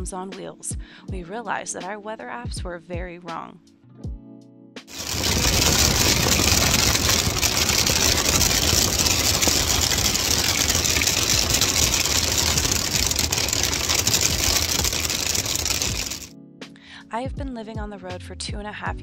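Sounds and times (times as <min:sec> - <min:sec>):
rain and hail on a tent: 0:04.9 - 0:16.3.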